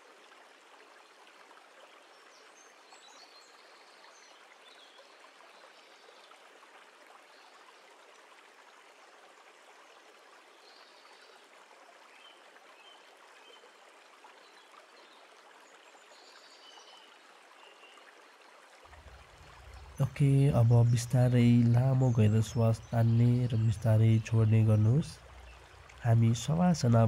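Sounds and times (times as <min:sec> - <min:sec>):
faint steady hiss: 0:00.0 - 0:27.0.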